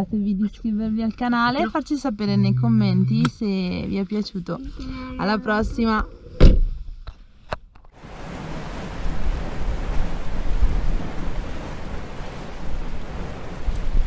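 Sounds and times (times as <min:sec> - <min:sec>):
loud thump: 0:06.4 - 0:06.8.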